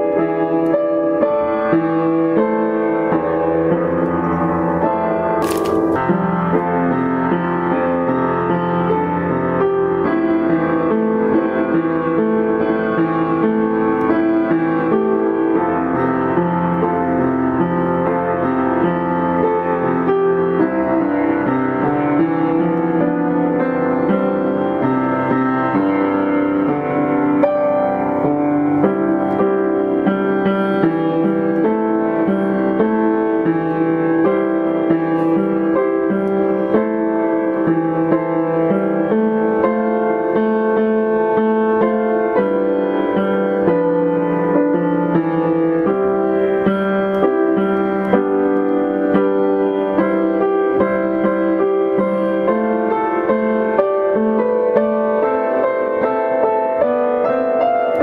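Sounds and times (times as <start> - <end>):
piano music: 0.0 - 58.0.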